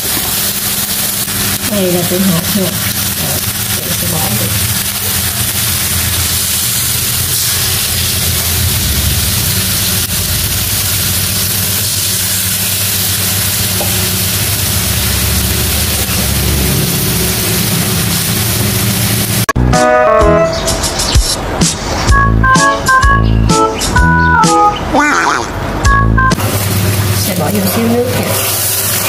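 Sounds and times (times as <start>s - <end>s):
fish frying sizzling in pan: 0.0s - 19.6s, 26.4s - 29.0s
low hum: 1.5s - 19.6s.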